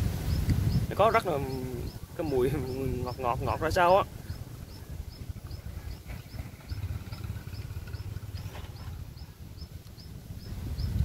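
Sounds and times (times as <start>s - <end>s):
low rumble: 3.0s - 10.9s.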